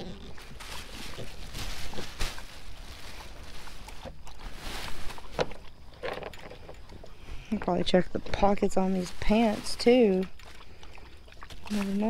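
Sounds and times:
plastic bag crinkling: 0:00.0 - 0:05.6, 0:08.1 - 0:10.4.

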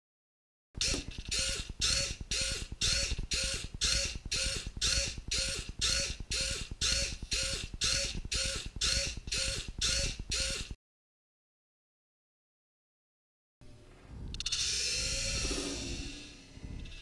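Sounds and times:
servo motor whirring: 0:00.8 - 0:10.8, 0:14.2 - 0:17.0.

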